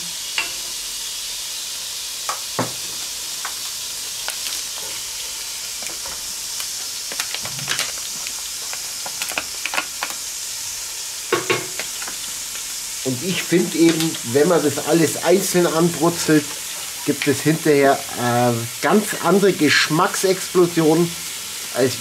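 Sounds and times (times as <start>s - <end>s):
meat sizzling in hot oil: 0.0s - 22.0s.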